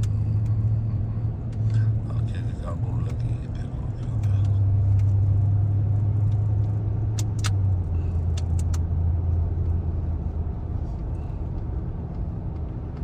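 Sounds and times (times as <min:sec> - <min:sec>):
engine droning: 0:00.0 - 0:13.0
sharp clicks: 0:06.2 - 0:08.9.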